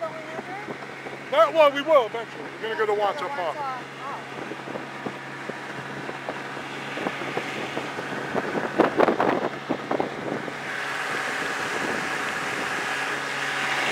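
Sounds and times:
outboard motor running: 0.0 - 13.9
water rushing: 0.0 - 13.9
wind on microphone: 0.0 - 13.9.

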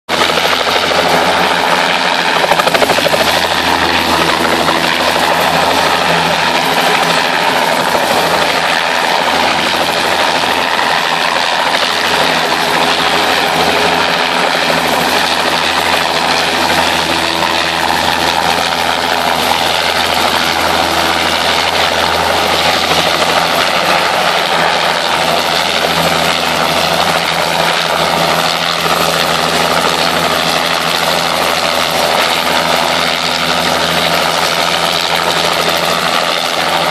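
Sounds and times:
helicopter hovering: 0.1 - 36.9.

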